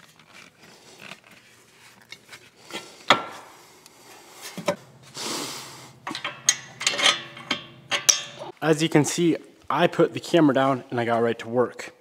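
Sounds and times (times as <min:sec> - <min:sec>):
metal parts and tools knocking: 0:06.0 - 0:08.5.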